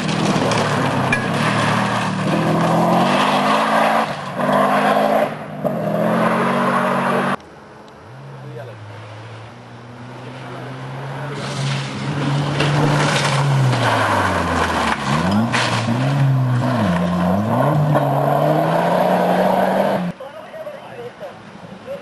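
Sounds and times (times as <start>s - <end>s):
tyres on gravel: 0.0s - 5.8s, 10.9s - 19.5s
rally car engine revving: 0.0s - 7.4s, 8.0s - 20.2s.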